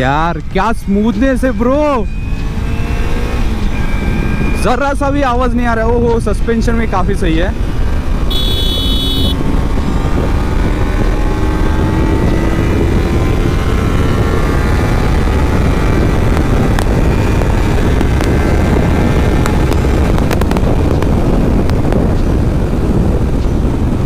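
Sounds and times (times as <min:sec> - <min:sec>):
wind rush on microphone: 0:00.0 - 0:24.0
motorcycle engine accelerating: 0:02.2 - 0:04.6, 0:07.6 - 0:24.0.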